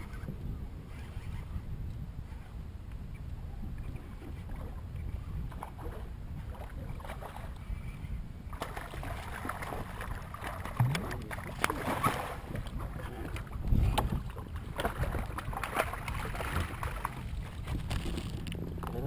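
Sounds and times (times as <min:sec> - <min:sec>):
wind rumble on microphone: 0:00.0 - 0:19.0
water lapping against hull: 0:03.5 - 0:19.0
crackling water splash: 0:08.5 - 0:12.7, 0:14.7 - 0:18.5.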